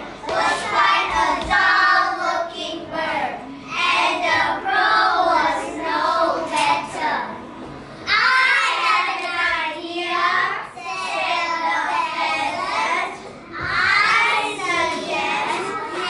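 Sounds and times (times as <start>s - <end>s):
children singing in unison: 0.2s - 7.2s.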